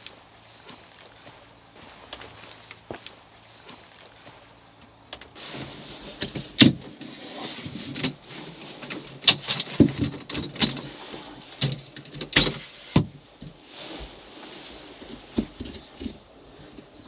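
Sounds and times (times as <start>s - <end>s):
rustling: 0.0s - 10.0s.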